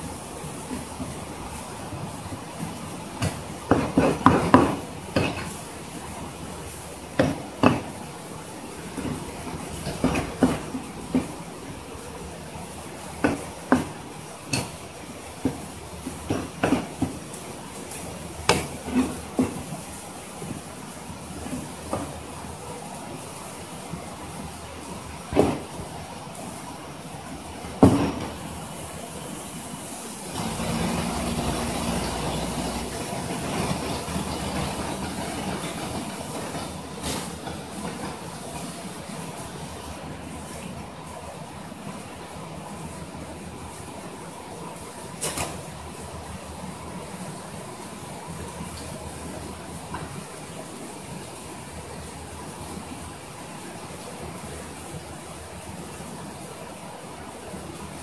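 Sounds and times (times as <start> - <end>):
water running from a hose: 30.2 - 40.7.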